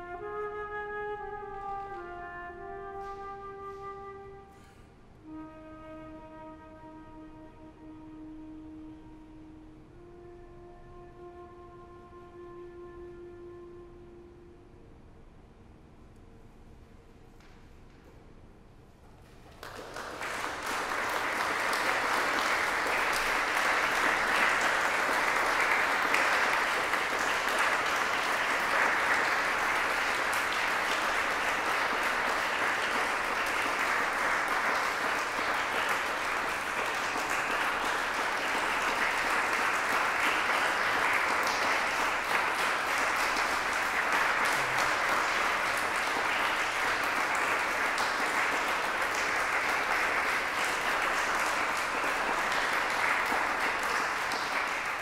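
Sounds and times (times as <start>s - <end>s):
audience applauding: 19.4s - 55.0s.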